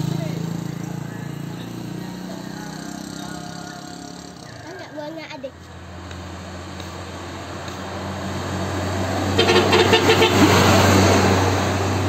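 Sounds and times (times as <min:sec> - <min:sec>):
truck engine drone passing: 0:00.0 - 0:12.0
truck horn short toots: 0:09.3 - 0:10.8.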